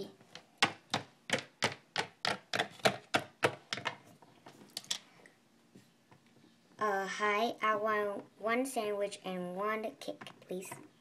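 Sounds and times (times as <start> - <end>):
plastic toy tapping on hard surface: 0.6 - 4.0.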